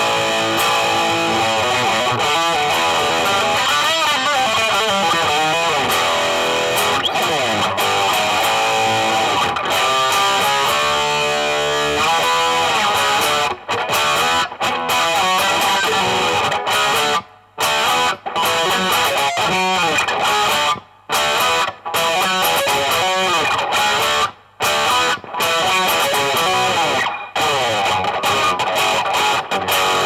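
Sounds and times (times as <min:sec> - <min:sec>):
electric guitar playing: 0:00.0 - 0:30.0.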